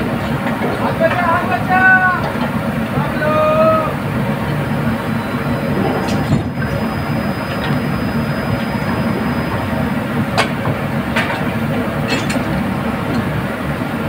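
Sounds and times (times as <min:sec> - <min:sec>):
drilling rig machinery drone: 0:00.0 - 0:14.0
sharp metal clanks: 0:12.0 - 0:12.5.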